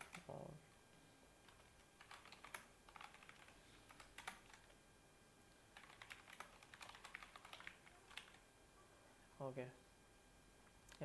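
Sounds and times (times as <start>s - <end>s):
computer keyboard typing: 0.0s - 0.4s, 1.4s - 4.8s, 5.7s - 8.4s.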